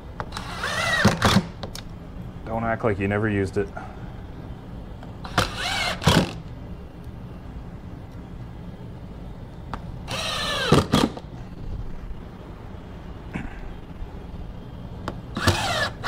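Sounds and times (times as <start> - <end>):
cordless drill into wood: 0.3 - 1.5, 5.3 - 6.4, 10.1 - 11.2, 15.4 - 16.0.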